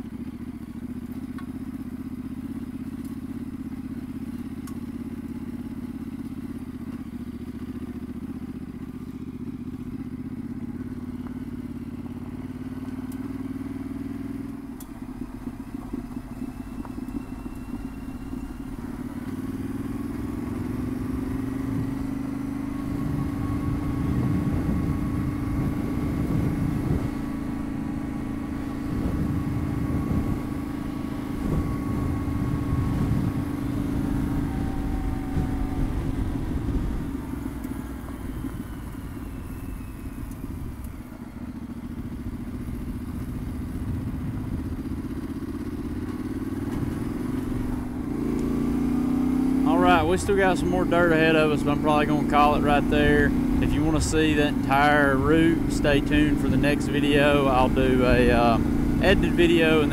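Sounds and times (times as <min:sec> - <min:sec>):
motorcycle engine droning: 0:00.0 - 0:59.9
rough rumble: 0:13.6 - 0:59.9.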